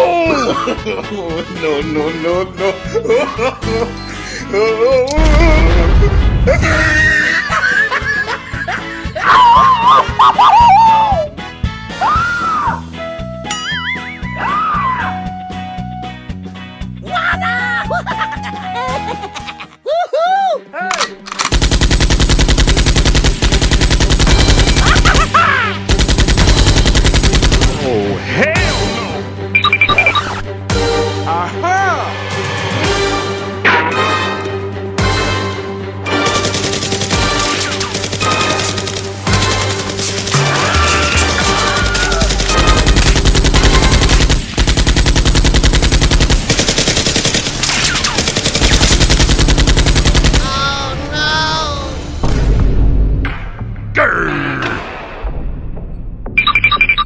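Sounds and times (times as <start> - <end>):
people shouting or screaming: 5.2 - 7.5, 9.2 - 11.3, 11.9 - 12.9, 13.7 - 15.4, 17.0 - 17.9, 25.3 - 25.8, 40.3 - 42.6, 50.4 - 52.0
automatic gunfire: 21.0 - 25.3, 25.9 - 27.9, 36.2 - 41.0, 42.0 - 50.6.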